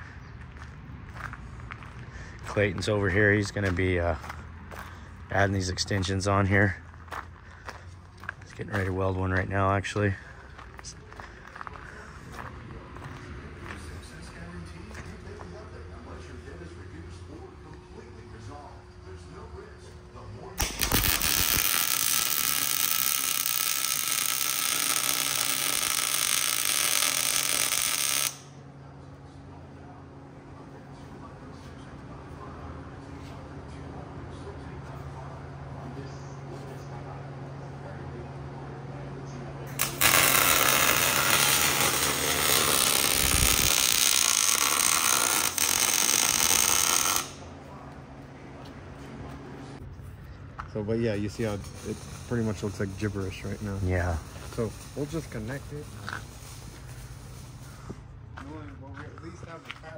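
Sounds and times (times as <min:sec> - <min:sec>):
welding arc clicks: 0:20.6 - 0:28.5, 0:39.7 - 0:47.4
welding arc crackling hiss: 0:20.6 - 0:28.5, 0:39.7 - 0:47.4, 0:51.1 - 0:57.8.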